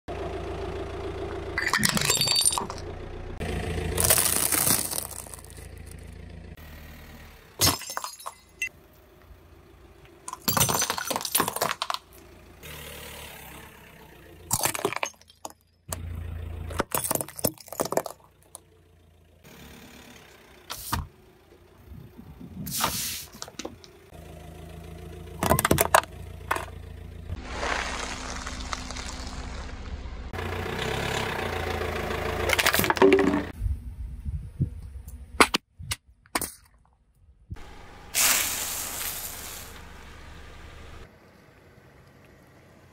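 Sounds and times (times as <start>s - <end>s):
low engine hum: 0.1s - 7.6s, 15.8s - 16.8s, 18.2s - 35.4s, 37.4s - 42.9s
tyre crushing brittle objects: 3.9s - 5.9s.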